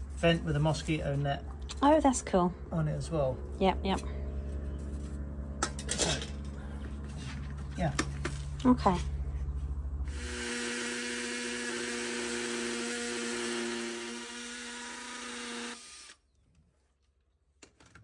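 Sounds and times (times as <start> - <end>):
low hum: 0.0 - 12.0
power drill drilling into wall: 10.1 - 16.2.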